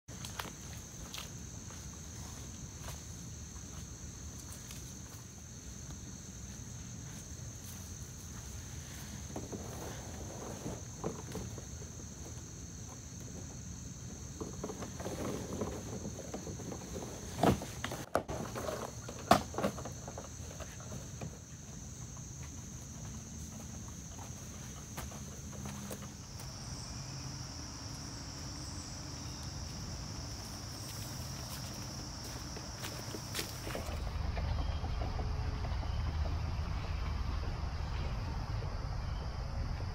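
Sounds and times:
insects droning: 0:00.1 - 0:39.9
low outdoor rumble: 0:21.1 - 0:39.9
footsteps on leaf litter: 0:28.4 - 0:34.0
low rumble: 0:33.8 - 0:39.9.

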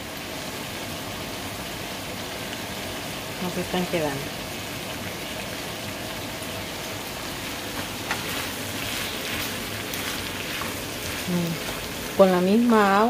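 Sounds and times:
vegetables sizzling in a frying pan: 0:00.0 - 0:13.0
wooden spoon stirring: 0:07.7 - 0:12.3.

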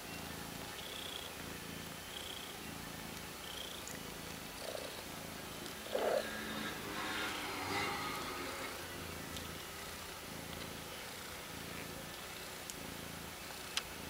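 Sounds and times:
cat purring: 0:00.1 - 0:14.0.

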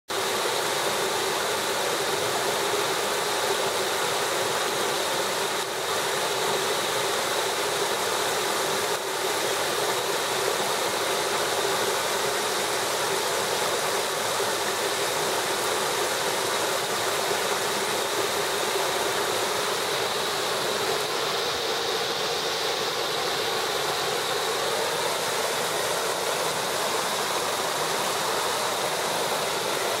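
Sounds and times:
waterfall rushing and splashing: 0:00.1 - 0:30.0.

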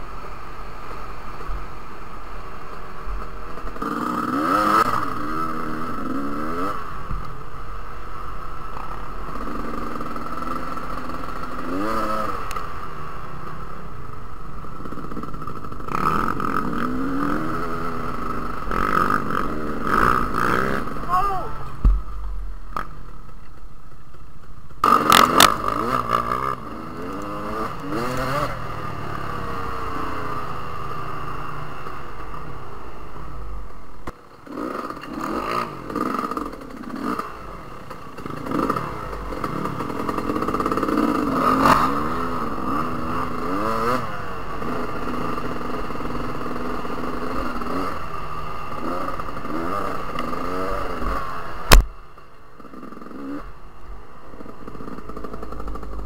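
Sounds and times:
dirt bike engines revving: 0:00.0 - 0:56.0
sharp knock: 0:51.7 - 0:51.9.

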